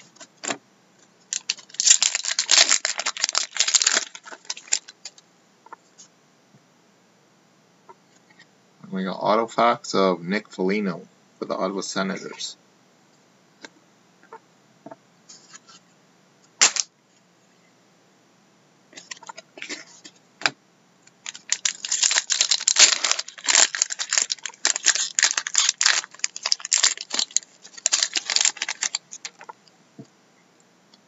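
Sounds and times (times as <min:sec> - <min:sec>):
foil wrapper tearing and crinkling: 0:01.3 - 0:05.0, 0:16.6 - 0:16.9, 0:21.2 - 0:29.5.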